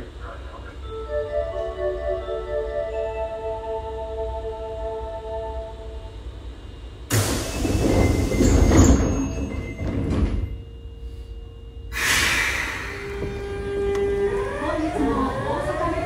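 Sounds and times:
train doors sliding shut: 0:07.1 - 0:10.6, 0:11.9 - 0:16.0.

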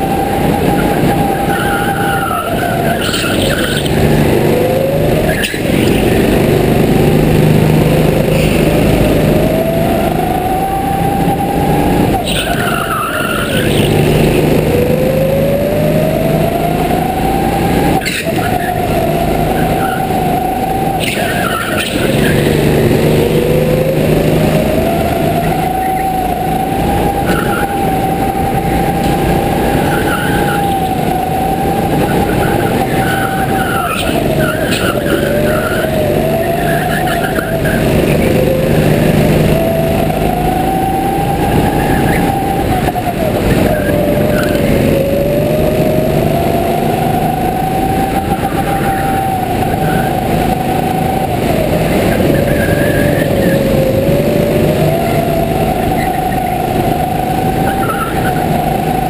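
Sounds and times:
go-kart engine whine: 0:00.0 - 0:59.0
rushing noise: 0:00.0 - 0:59.0.

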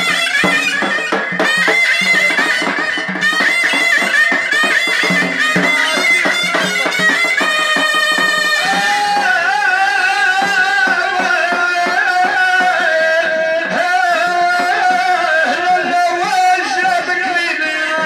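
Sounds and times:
reedy bagpipe-like melody: 0:00.0 - 0:11.0
quick drum strokes: 0:00.0 - 0:12.9.

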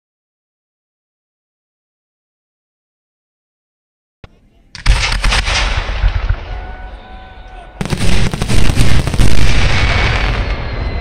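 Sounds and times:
fireworks booming and bursting: 0:04.8 - 0:07.1, 0:07.8 - 0:11.0.

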